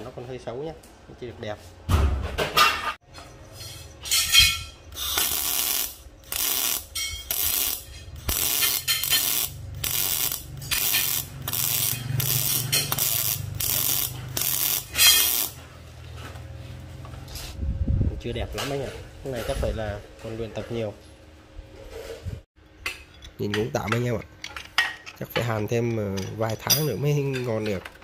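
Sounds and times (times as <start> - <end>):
welding arc crackling: 5.0 - 15.6.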